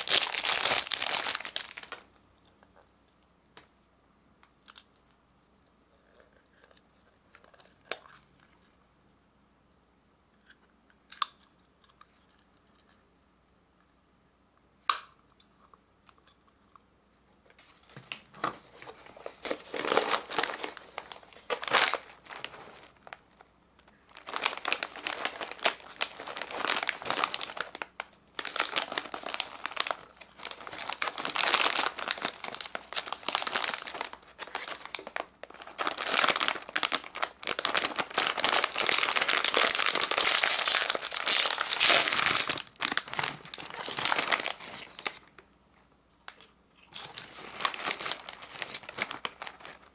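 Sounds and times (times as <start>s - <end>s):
plastic snack bags crinkling: 0.0s - 2.1s, 17.7s - 45.4s, 46.3s - 49.9s.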